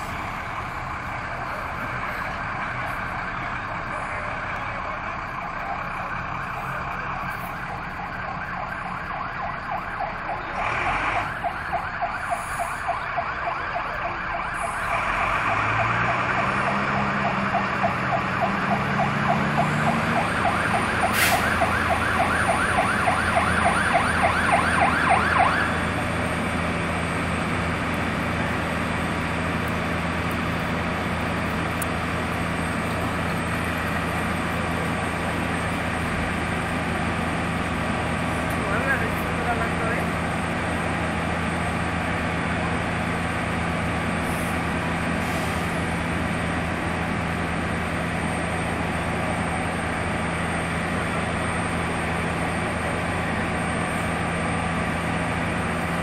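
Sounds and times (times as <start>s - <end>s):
fire engine siren wailing: 0.0s - 56.0s
truck engine revving: 10.4s - 11.5s, 14.6s - 56.0s.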